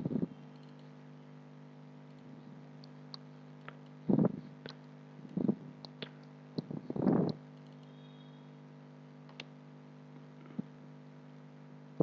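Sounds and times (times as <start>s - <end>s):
low electrical hum: 0.0s - 12.0s
computer mouse clicking: 0.6s - 0.9s.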